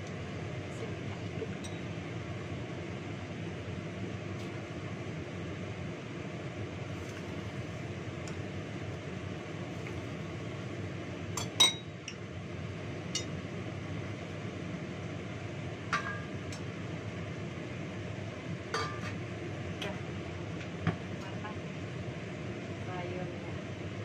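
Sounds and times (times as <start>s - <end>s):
extractor fan running: 0.0s - 24.0s
dishes and utensils clinking: 11.4s - 11.9s, 18.7s - 19.2s.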